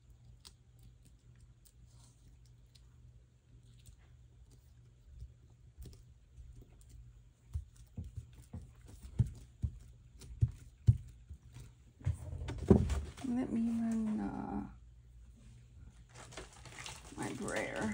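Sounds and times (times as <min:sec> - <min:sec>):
hands handling paper: 0:16.0 - 0:17.9.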